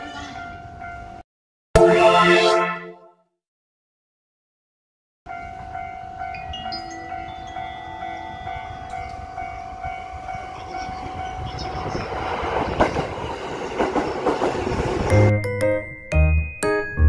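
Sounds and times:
level crossing bells ringing: 5.3 - 11.5, 15.1 - 17.0
train rumble and wheel clatter: 5.4 - 15.5.

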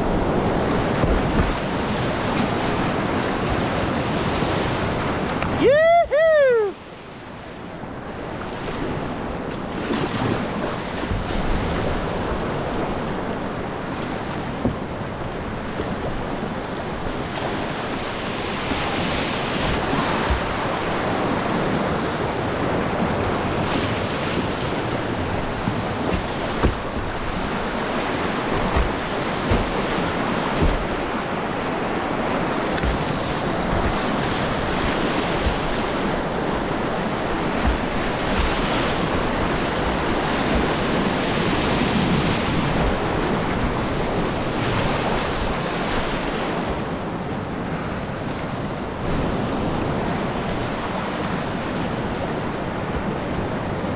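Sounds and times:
whitewater rapids rushing: 0.0 - 6.9, 14.0 - 46.6.

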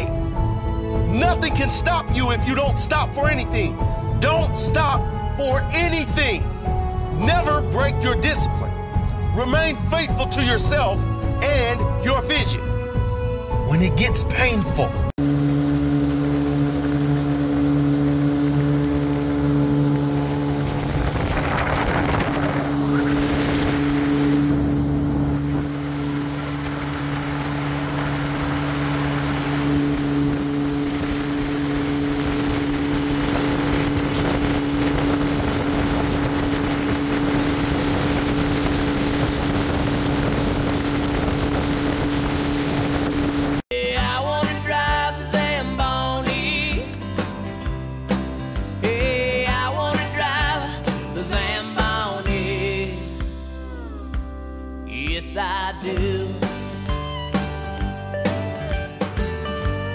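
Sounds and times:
motorboat engine humming: 0.0 - 5.6, 15.1 - 43.6
rush of wind and water: 15.2 - 43.6.

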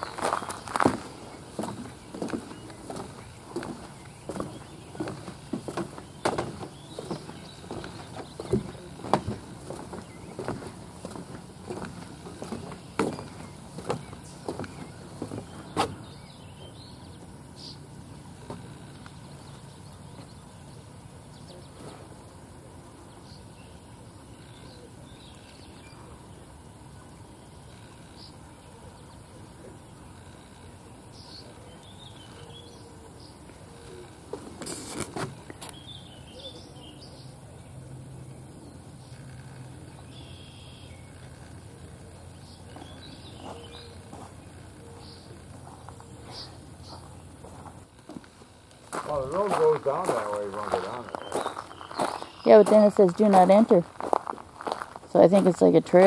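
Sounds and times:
steady low hum: 0.0 - 56.0
faint bird chirps: 35.4 - 47.3, 50.1 - 52.6.

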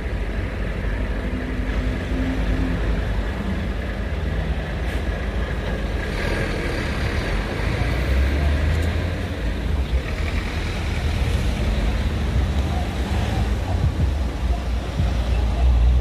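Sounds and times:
low rumble of road vehicles: 0.0 - 16.0.

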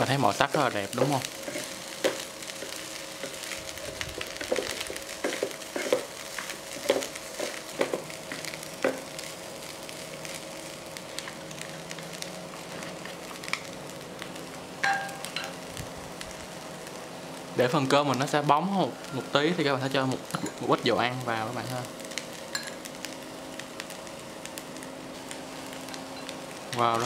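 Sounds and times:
fried rice sizzling in a pan: 0.0 - 27.0
utensils clicking and scraping pan: 0.4 - 9.0.

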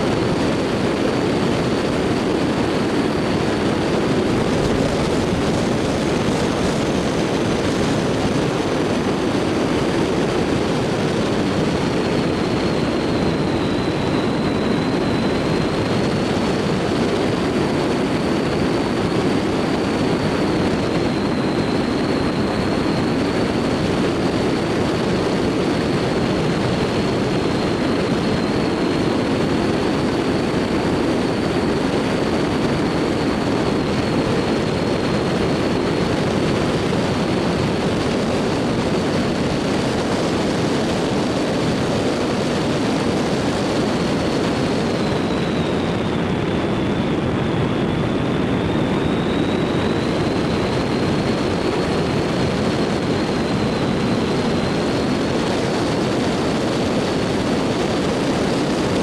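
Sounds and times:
car engine and road noise: 0.0 - 29.1
thin high whine: 0.0 - 59.0.

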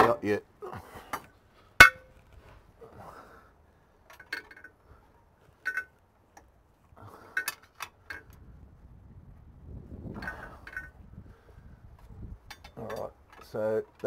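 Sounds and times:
metal tools clinking: 5.6 - 6.0, 10.2 - 11.0, 12.4 - 14.0.

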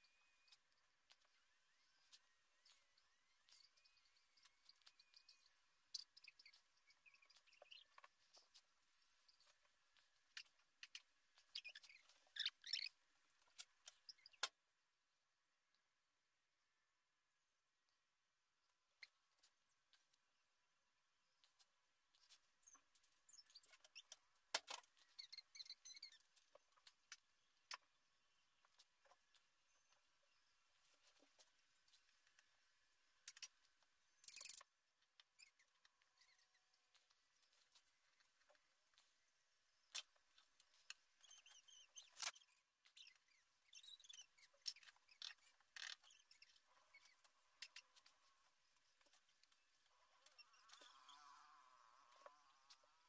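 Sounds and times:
faint high wavering chirps: 0.0 - 14.4, 25.0 - 34.6, 35.2 - 39.2, 39.8 - 53.0.

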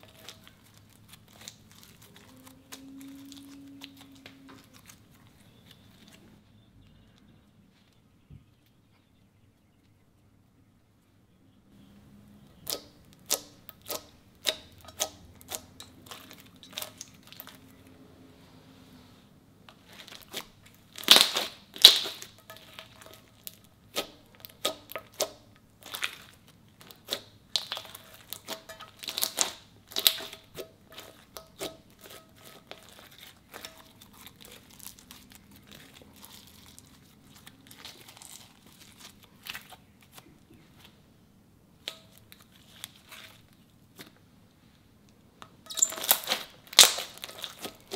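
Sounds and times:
slime clicking and crackling: 0.0 - 6.2, 12.6 - 17.8, 19.8 - 40.3, 45.6 - 47.9.

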